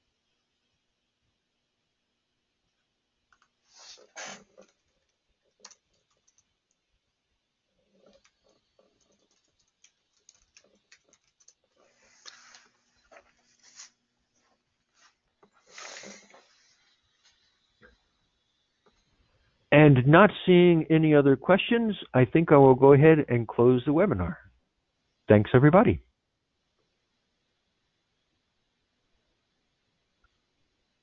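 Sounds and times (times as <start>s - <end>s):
faint keyboard typing: 3.3s - 3.6s, 4.5s - 6.9s, 7.8s - 13.5s
rustling: 10.1s - 17.5s.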